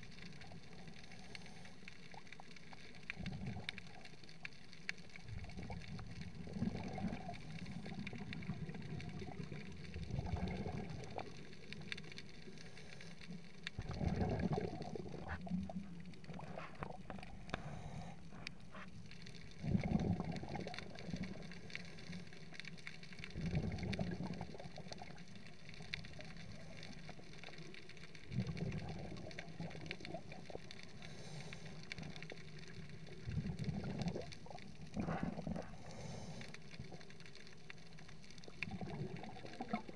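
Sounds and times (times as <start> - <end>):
faint hiss: 0.0 - 39.9
underwater exhaled bubbles gurgling: 0.0 - 39.9.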